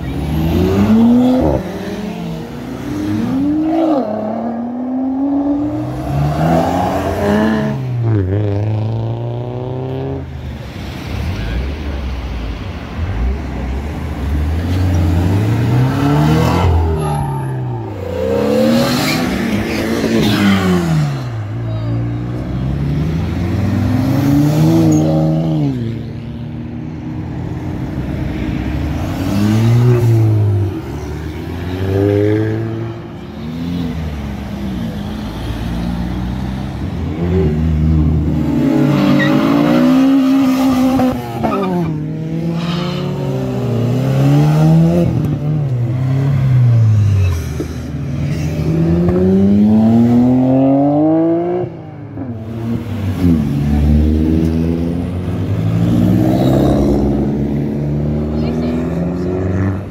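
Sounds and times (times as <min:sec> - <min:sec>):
cars accelerating past: 0:12.9 - 0:21.6, 0:22.3 - 0:59.9.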